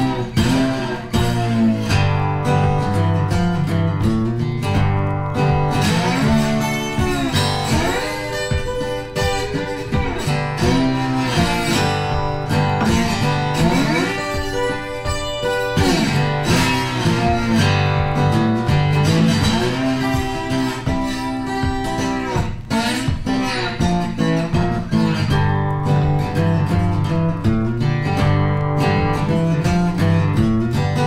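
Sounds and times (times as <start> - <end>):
acoustic guitar music: 0.0 - 31.0.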